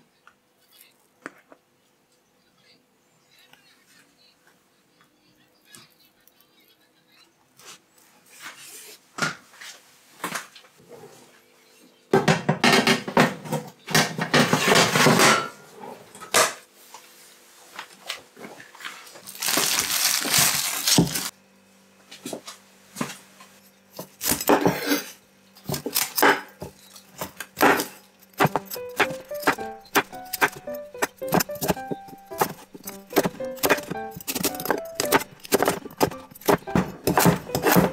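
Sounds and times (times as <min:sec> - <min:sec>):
kitchen knocks and handling: 0:12.2 - 0:15.6, 0:25.7 - 0:37.9
knife cutting on wooden board: 0:27.6 - 0:37.9.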